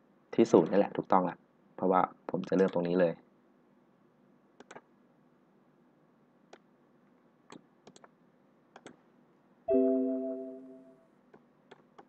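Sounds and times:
computer mouse clicks: 4.6s - 4.9s, 7.5s - 8.1s, 8.7s - 9.0s, 11.3s - 12.0s
chime of several notes: 9.7s - 11.0s.

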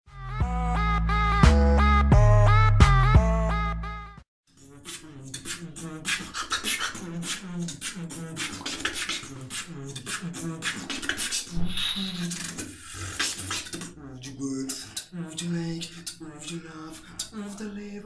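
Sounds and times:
beatboxing kick and snare: 5.4s - 13.9s.

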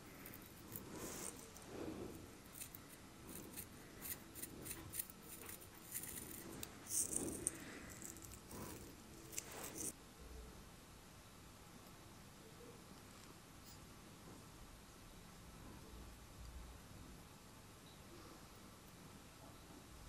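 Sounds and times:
fingernails scratching beard stubble: 0.0s - 9.9s.

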